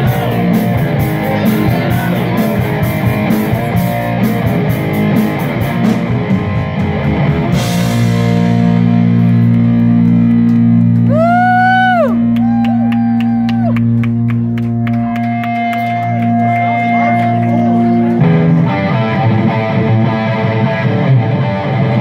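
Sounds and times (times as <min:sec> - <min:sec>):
drum kit with cymbals: 0:00.0 - 0:09.5
bass guitar: 0:00.0 - 0:22.0
electric guitar: 0:00.0 - 0:22.0.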